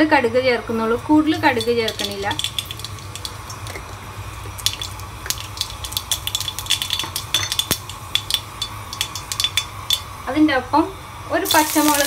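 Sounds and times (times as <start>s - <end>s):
seeds popping in hot oil: 1.2s - 10.2s, 11.4s - 12.0s.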